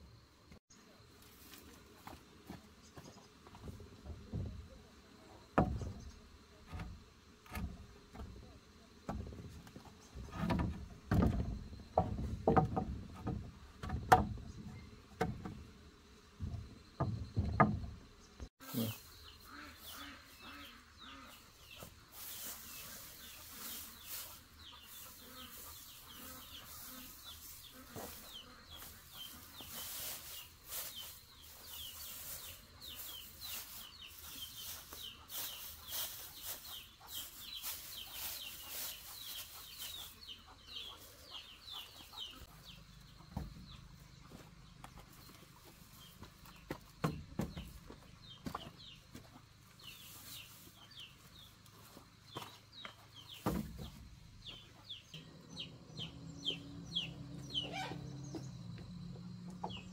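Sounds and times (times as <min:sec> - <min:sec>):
chickens clucking: 0:18.6 - 0:59.9
dry straw crackling: 0:22.1 - 0:40.2.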